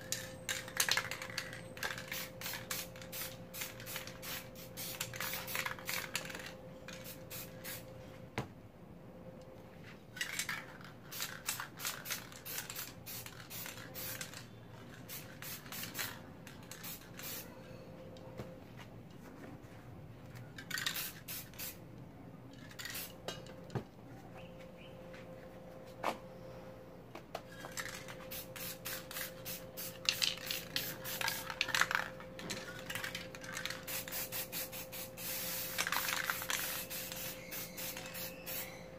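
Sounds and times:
spray paint cans hissing: 0.1 - 7.8, 11.1 - 17.5, 20.7 - 21.8, 22.7 - 23.2, 27.7 - 38.9.

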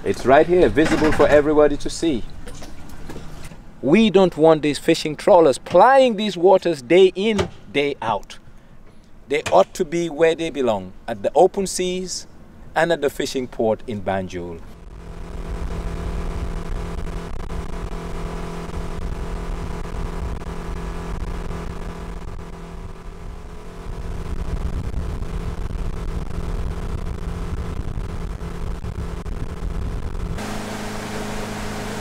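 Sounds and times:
wind: 0.0 - 31.3
motorboat engine running: 14.7 - 32.0.

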